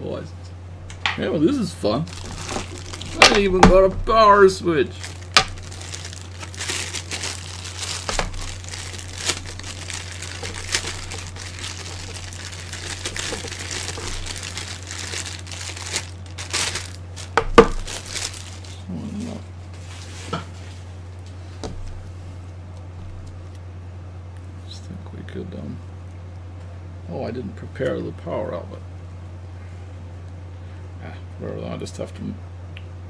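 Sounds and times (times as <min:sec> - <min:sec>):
steady low hum: 0:00.0 - 0:33.0
plastic bags crinkling: 0:02.0 - 0:18.8.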